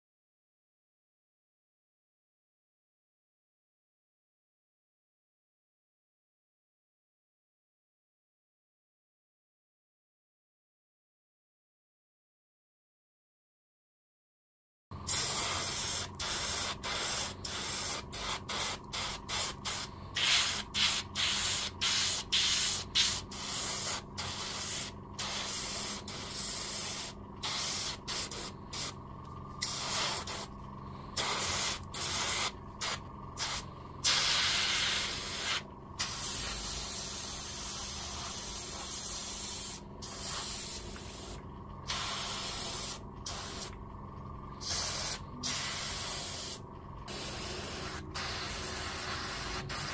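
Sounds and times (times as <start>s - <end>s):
faint steady hum: 15.0s - 49.9s
paint spraying in hissing bursts: 15.1s - 29.0s, 29.6s - 30.5s, 31.2s - 43.7s, 44.6s - 49.9s.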